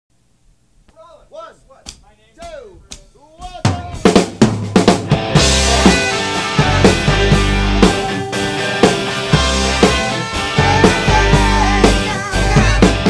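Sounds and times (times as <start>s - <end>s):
drum hits: 1.8s - 13.0s
rock band playing: 3.0s - 13.0s
sliding pitched notes: 5.1s - 13.0s
cymbals crashing: 5.2s - 10.6s.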